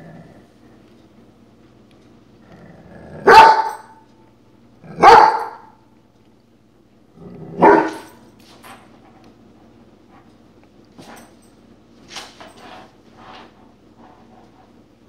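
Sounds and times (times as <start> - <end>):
dog barking loudly: 3.2 - 3.9, 4.9 - 5.8, 7.6 - 8.1.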